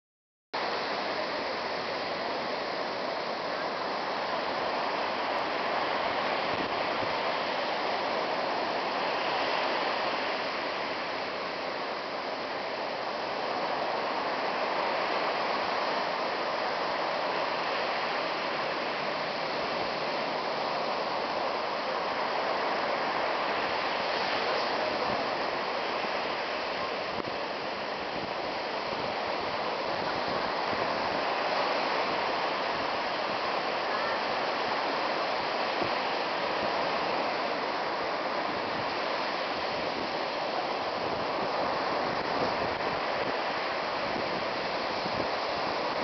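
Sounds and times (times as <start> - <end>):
ocean surf breaking: 0.6 - 46.0.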